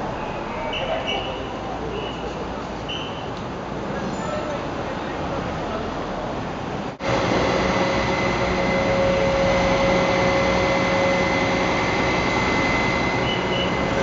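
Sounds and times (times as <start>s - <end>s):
truck engine drone: 6.8s - 14.0s
steady whine: 7.0s - 14.0s.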